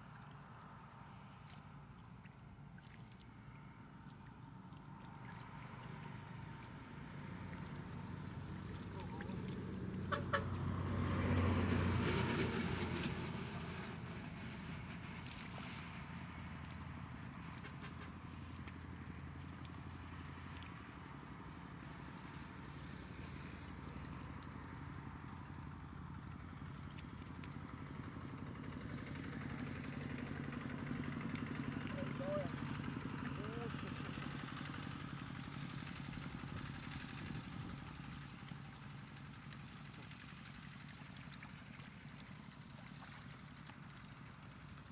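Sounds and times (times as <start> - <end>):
hands splashing in muddy water: 0.0 - 12.2, 37.1 - 44.9
small engine idling: 0.0 - 44.9.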